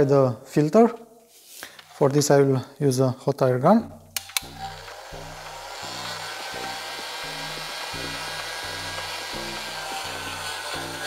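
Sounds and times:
low background music: 3.7s - 11.0s
hot air gun blowing: 4.2s - 11.0s.

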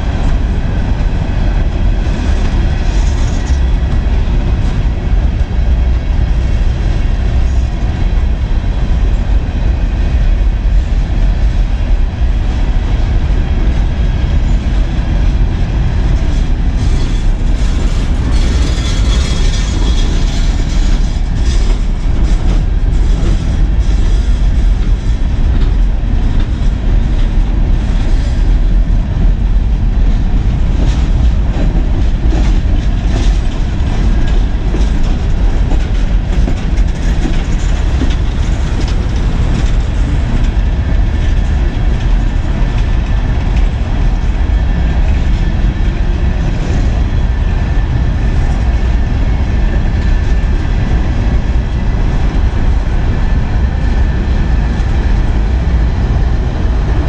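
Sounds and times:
train wheels rumbling on rail: 0.0s - 57.0s
clacks and rattles: 13.7s - 28.6s, 29.2s - 57.0s.

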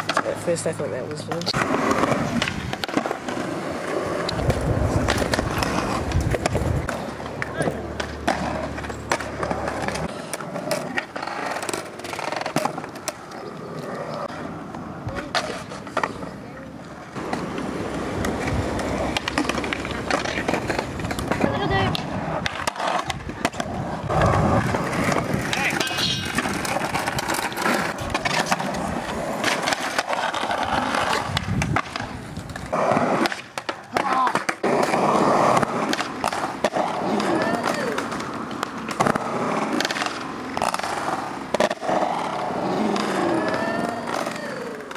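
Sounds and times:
skateboard clacking on ground: 0.0s - 44.9s
skateboard wheels rolling on concrete: 0.0s - 44.9s.

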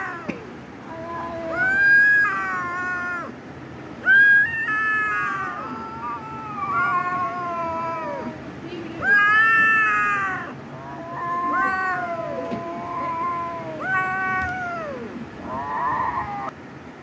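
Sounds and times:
young cats meowing and yowling: 0.0s - 3.4s, 4.0s - 8.4s, 9.0s - 16.6s.

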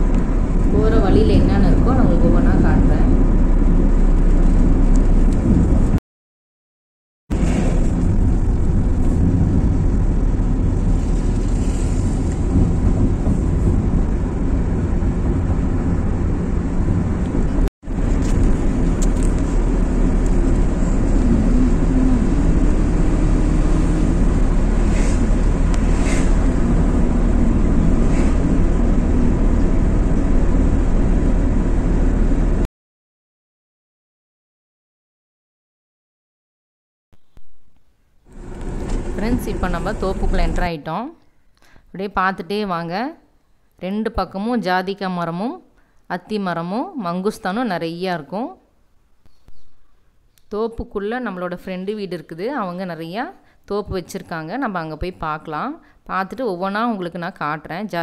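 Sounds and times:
car engine and road noise: 0.0s - 6.0s, 7.3s - 32.7s, 37.2s - 40.7s.

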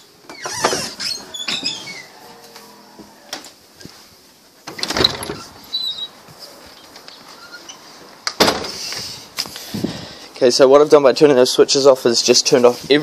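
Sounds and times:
sliding glass door in track: 0.3s - 3.6s, 4.6s - 6.3s.

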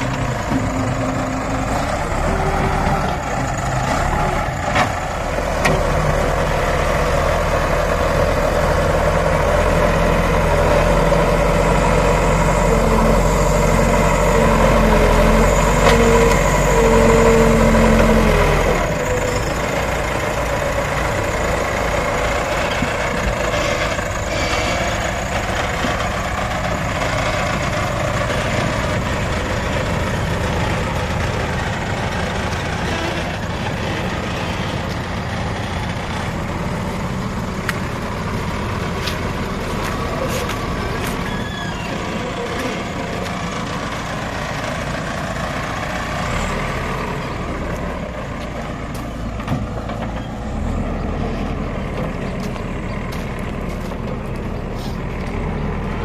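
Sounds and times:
diesel engine working under load: 0.0s - 56.0s.

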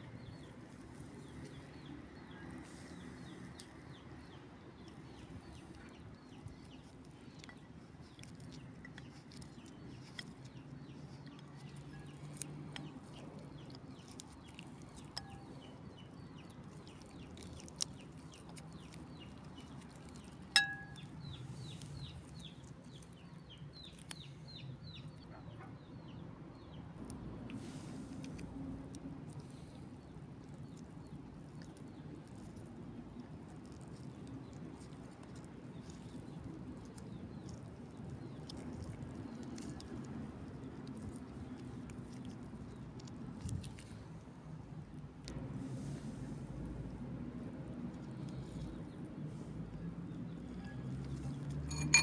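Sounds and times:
knife clinking on ceramic plate: 20.5s - 21.0s, 51.7s - 52.0s
low outdoor hum: 26.3s - 52.0s.

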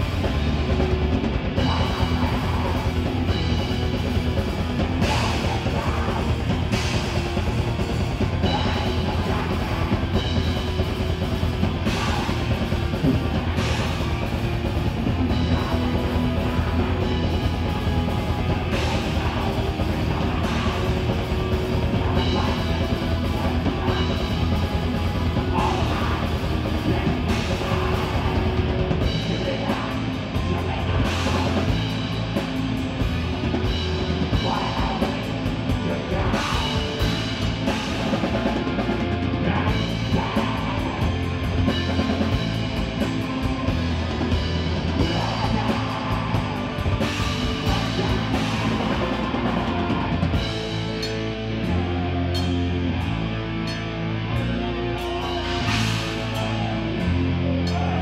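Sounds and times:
metal band playing: 0.0s - 58.0s.

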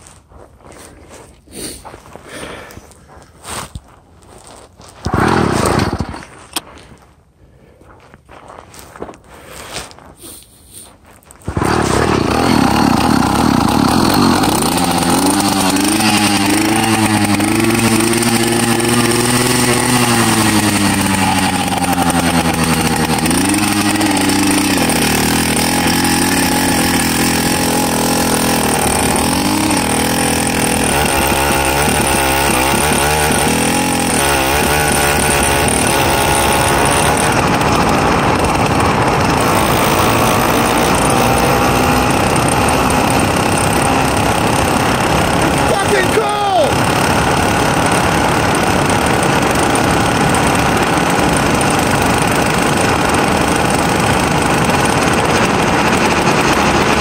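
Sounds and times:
two-stroke bicycle engine revving: 5.0s - 6.2s, 11.5s - 57.0s.

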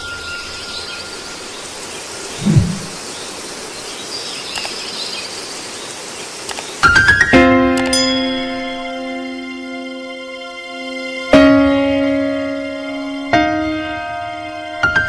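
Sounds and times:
background hiss: 0.0s - 7.2s
short low falling sound: 2.4s - 3.0s.

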